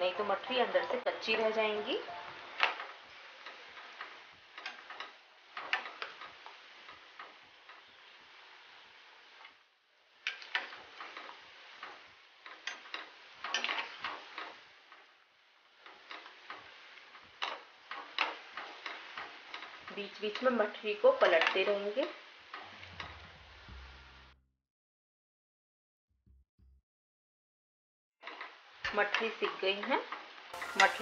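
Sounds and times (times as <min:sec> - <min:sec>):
sizzling in hot oil: 0:00.1 - 0:24.2, 0:28.2 - 0:31.0.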